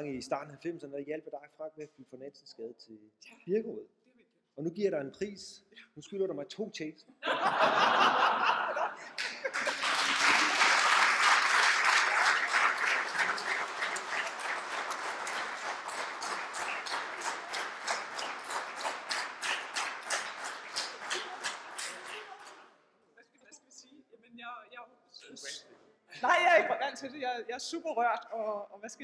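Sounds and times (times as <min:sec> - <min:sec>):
audience laughing: 0:07.2 - 0:10.9
audience applauding: 0:09.0 - 0:22.6.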